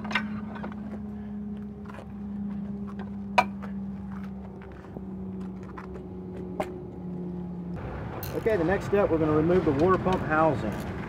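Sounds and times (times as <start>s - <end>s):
steady low hum: 0.0s - 8.3s.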